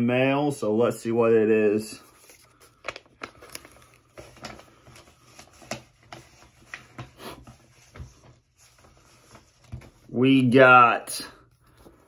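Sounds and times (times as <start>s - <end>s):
paper envelope rustling: 2.0s - 10.2s.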